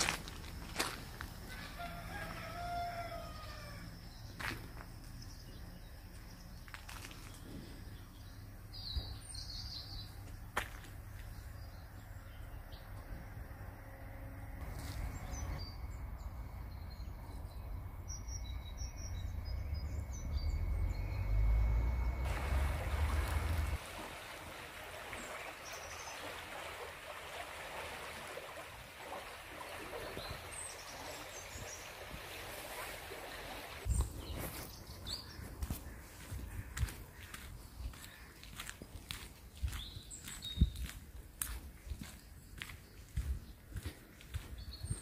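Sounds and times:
rushing stream: 22.2s - 33.9s
small birds chirping: 33.8s - 45.0s.

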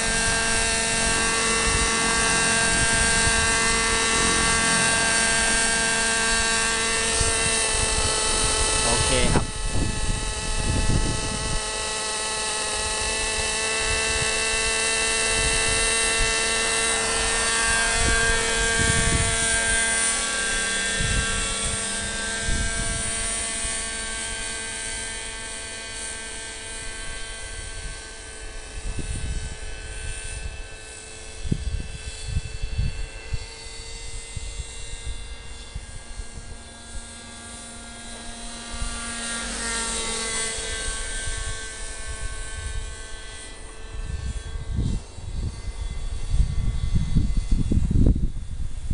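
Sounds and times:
wind buffeting microphone: 0.0s - 11.9s, 12.7s - 25.9s, 26.6s - 37.2s, 38.2s - 48.9s
model helicopter rotor whining: 0.0s - 48.9s.

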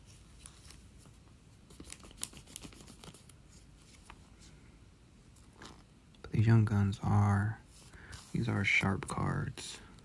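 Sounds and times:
cards clicking and rustling: 1.7s - 4.2s.

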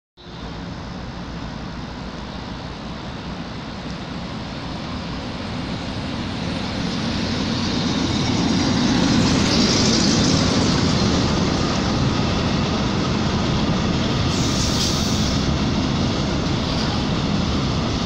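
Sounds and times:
train wheels rumbling on rails: 0.2s - 18.0s
locomotive hiss: 14.2s - 15.6s.

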